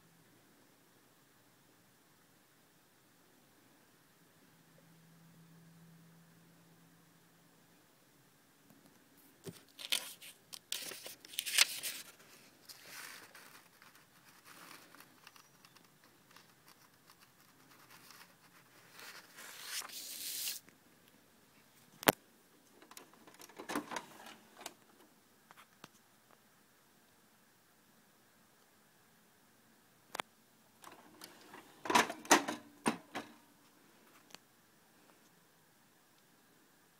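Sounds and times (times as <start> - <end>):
paper rustling and crinkling: 9.4 - 20.6.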